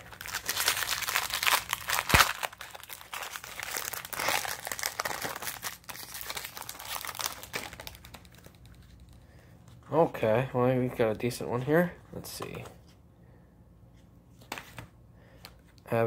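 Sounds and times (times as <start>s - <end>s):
foil wrapper crinkling: 0.0s - 9.1s.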